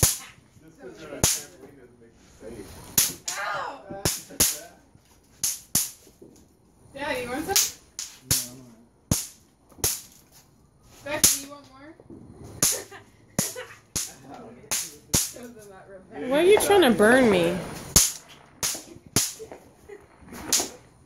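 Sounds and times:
voices: 11.0 - 20.9
bang snaps popping on tile floor: 17.9 - 19.6.

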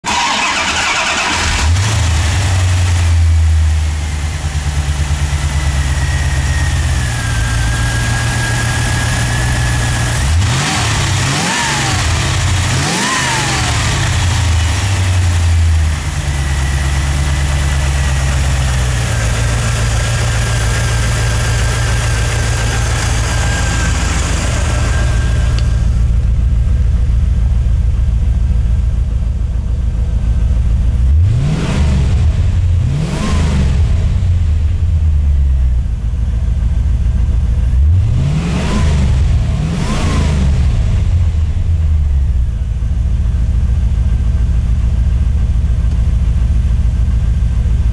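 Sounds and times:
car engine revving: 0.0 - 27.0, 30.9 - 35.0, 37.6 - 42.1
car engine starting and idling: 0.0 - 47.9.

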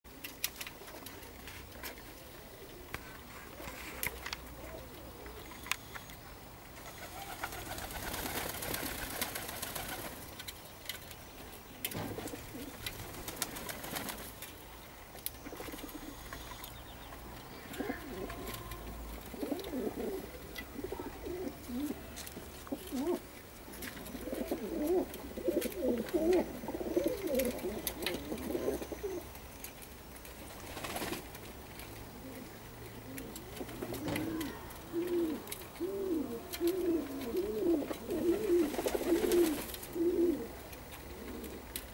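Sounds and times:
pigeons cooing: 2.0 - 6.0, 6.8 - 10.2, 11.9 - 14.1, 15.4 - 29.4, 32.0 - 41.9.

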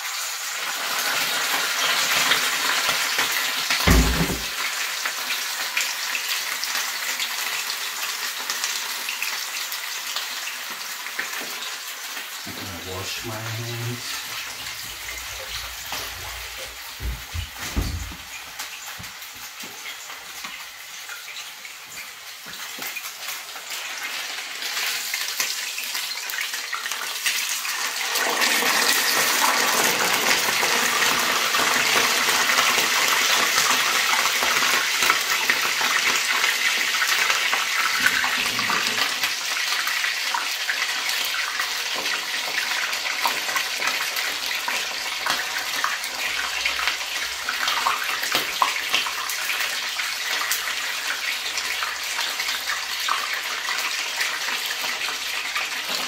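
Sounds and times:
chicken sizzling in hot oil: 0.0 - 56.0
kitchen tap running: 3.7 - 4.6, 12.4 - 23.0, 28.1 - 39.5.

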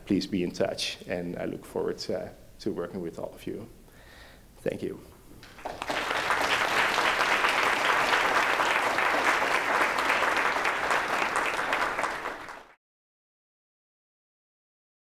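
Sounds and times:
audience applauding: 5.4 - 12.8.

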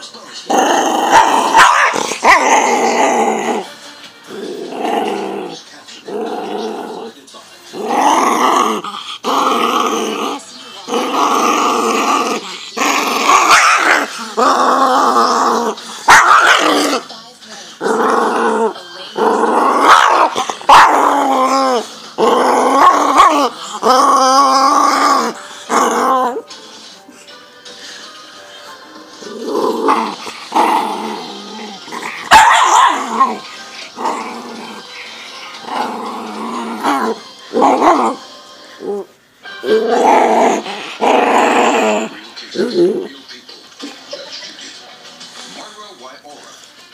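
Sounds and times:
small dog growling: 0.4 - 17.1, 17.8 - 26.5, 29.2 - 38.2, 38.8 - 43.2.

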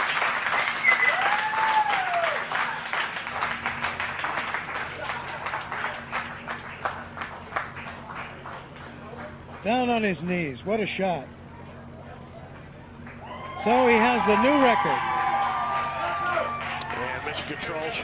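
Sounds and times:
people applauding: 0.0 - 10.0, 12.5 - 18.0
cheering whoop: 0.7 - 2.8, 13.2 - 18.0.

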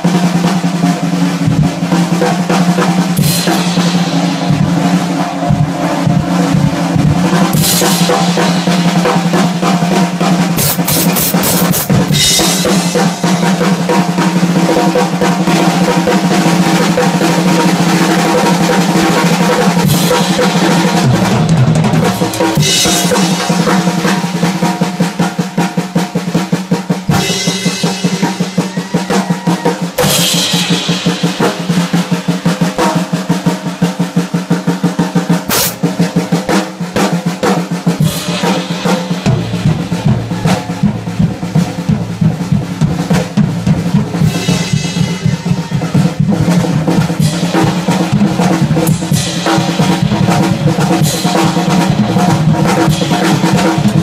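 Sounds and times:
drum rolls on snare and toms: 0.0 - 54.0
cymbal crashes: 3.1 - 13.9, 27.1 - 29.2, 30.0 - 33.1, 35.5 - 36.1, 38.0 - 41.6, 44.2 - 52.1.

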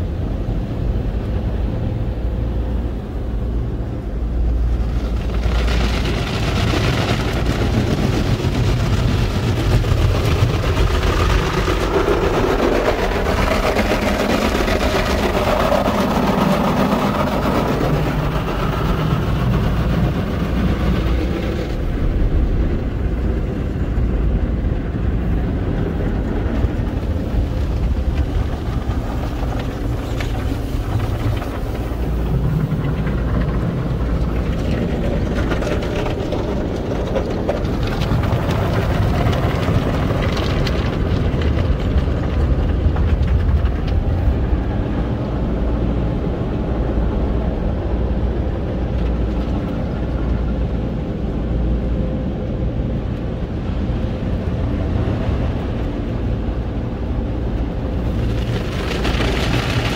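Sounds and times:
car wash machinery rumble: 0.0 - 59.9
water spraying against car: 2.2 - 41.4, 57.1 - 59.9.

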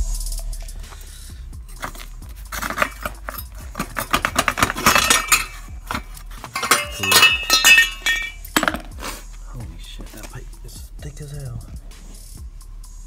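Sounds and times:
metal bike frame clinking: 1.7 - 9.0.

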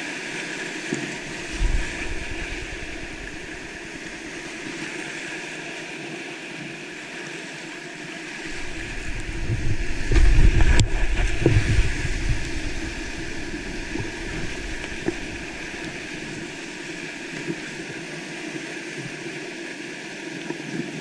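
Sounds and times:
water splashing over camera: 0.0 - 5.7, 8.4 - 19.4
whitewater rapids rushing: 0.0 - 20.4.

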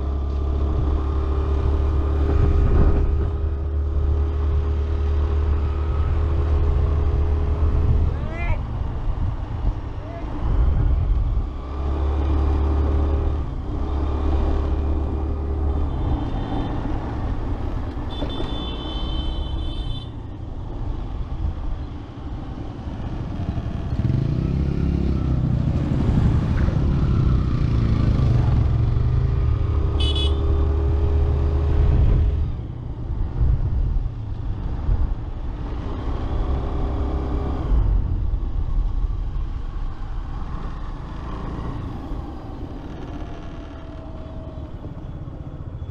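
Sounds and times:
horn sounding: 30.0 - 30.4.

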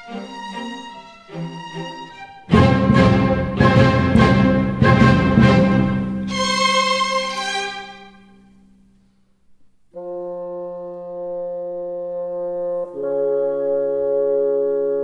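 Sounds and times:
orchestral music: 0.0 - 8.7
held brass chord: 2.4 - 8.6, 10.0 - 15.0.

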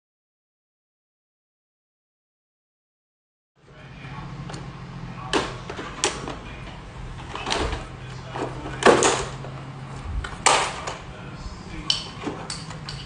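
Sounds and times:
steady low hum: 3.6 - 13.0.

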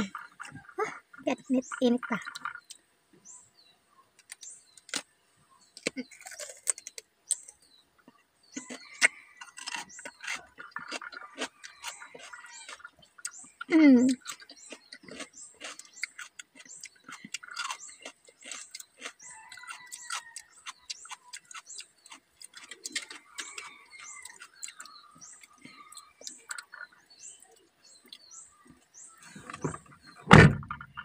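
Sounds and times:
cucumber crunching: 4.2 - 5.1, 5.7 - 7.6, 8.5 - 28.3.

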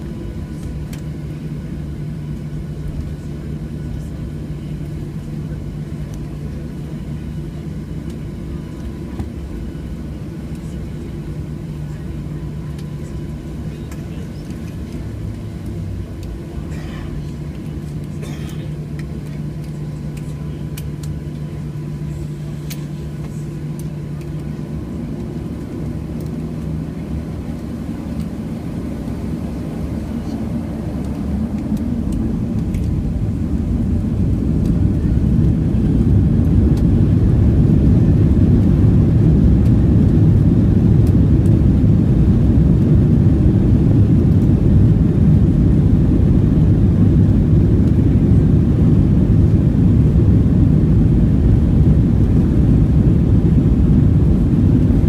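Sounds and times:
jet engines roaring: 0.0 - 55.0.

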